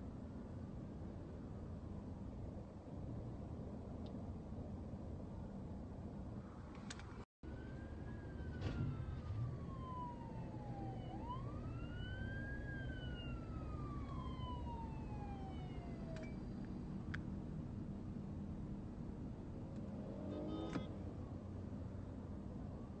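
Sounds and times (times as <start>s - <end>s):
low traffic rumble: 0.0s - 23.0s
police siren wailing: 7.4s - 16.4s.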